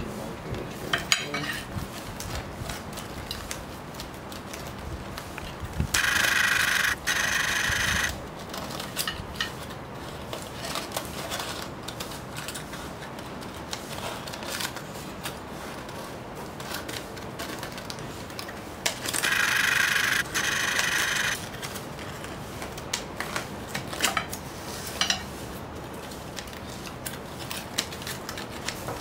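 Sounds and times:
foil crinkling: 0:01.9 - 0:05.6, 0:08.2 - 0:19.2, 0:25.9 - 0:29.0.

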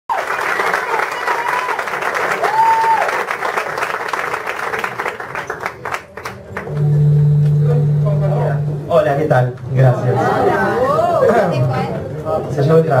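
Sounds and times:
audience applauding: 0:00.1 - 0:07.0
low held tone: 0:06.6 - 0:09.3.

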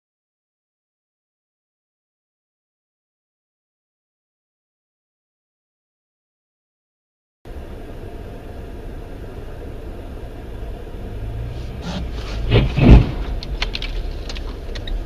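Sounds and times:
car cabin road rumble: 0:07.5 - 0:15.0
car crash: 0:11.4 - 0:15.0.

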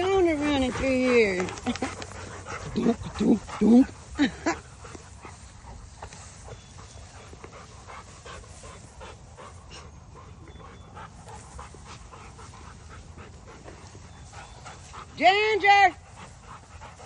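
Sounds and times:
rustling through tall grass: 0:00.0 - 0:10.4
dogs panting: 0:00.0 - 0:17.0.

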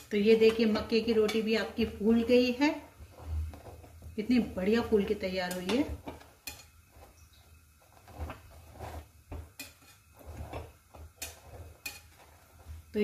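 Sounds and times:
metal tongs tapping grate: 0:05.4 - 0:06.7.

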